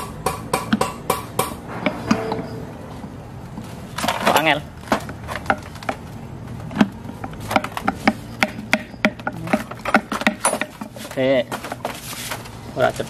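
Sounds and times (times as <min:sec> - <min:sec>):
metal clicking and knocking: 0:06.6 - 0:11.9.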